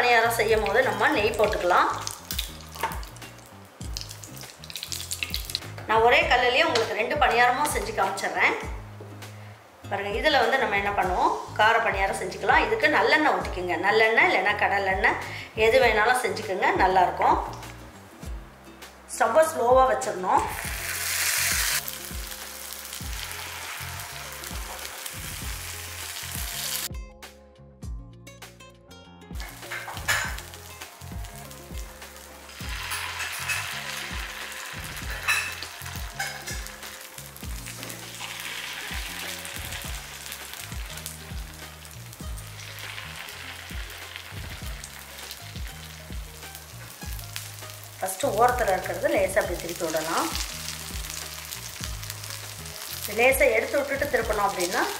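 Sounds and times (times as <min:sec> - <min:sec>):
background music: 0:00.0 - 0:54.9
batter sizzling in hot oil: 0:00.2 - 0:05.8, 0:20.4 - 0:26.9, 0:29.4 - 0:54.9.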